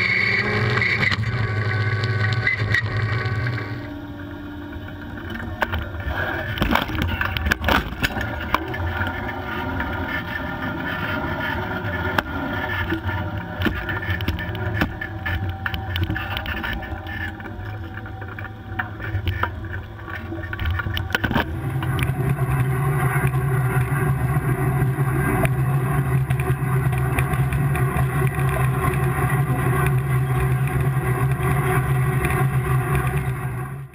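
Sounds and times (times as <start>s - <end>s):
low hum with hiss: 0.0s - 33.9s
tractor diesel engine droning: 0.0s - 33.9s
implement clicking and rattling: 4.7s - 33.4s.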